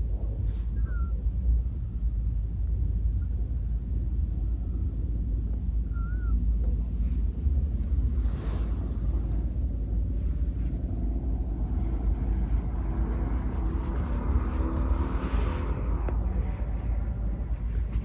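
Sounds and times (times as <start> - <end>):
traffic noise: 0.0 - 18.0
vehicle engine: 0.0 - 18.0
wind buffeting microphone: 0.0 - 18.0.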